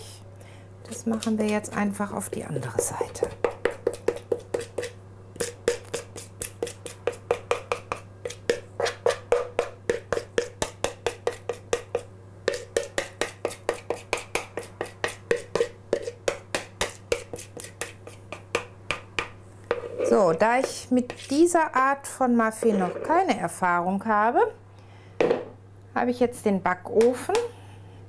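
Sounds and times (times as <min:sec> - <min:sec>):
spoon scraping batter from bowl: 0:02.7 - 0:09.4, 0:12.5 - 0:16.2, 0:16.8 - 0:18.4, 0:19.7 - 0:21.6, 0:22.5 - 0:23.3.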